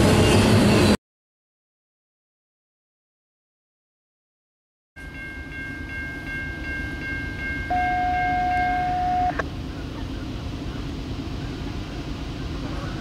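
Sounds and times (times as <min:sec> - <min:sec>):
crossing warning bell ringing: 0:05.0 - 0:09.5
train horn note: 0:07.7 - 0:09.4.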